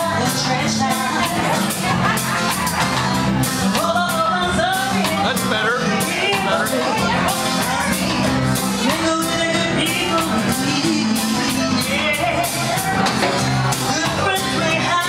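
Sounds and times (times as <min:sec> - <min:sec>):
live reggae band: 0:00.0 - 0:15.0
woman singing: 0:00.0 - 0:15.0.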